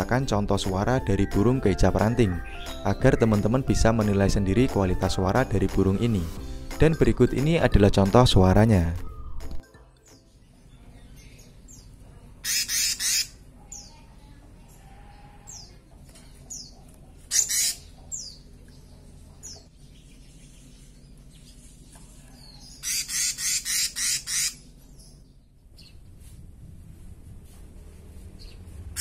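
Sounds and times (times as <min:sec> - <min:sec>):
bird harsh rasping call: 0:12.4 - 0:13.4, 0:17.3 - 0:17.9, 0:22.6 - 0:24.7.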